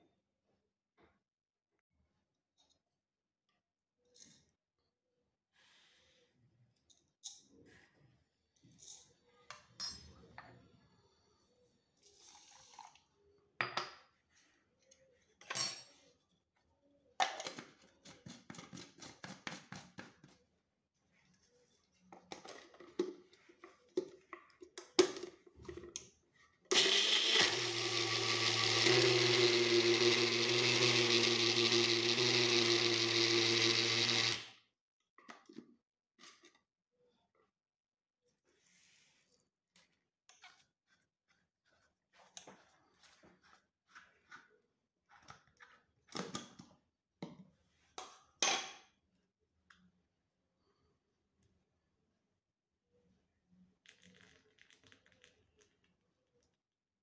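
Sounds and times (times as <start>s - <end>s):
electric mixer grinder running: 26.7s - 34.5s.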